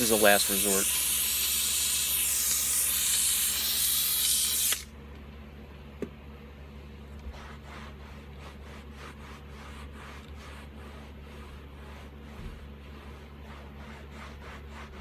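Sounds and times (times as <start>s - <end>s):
steam cleaner hissing: 0.0s - 4.8s
towel rubbing fabric: 7.2s - 15.0s.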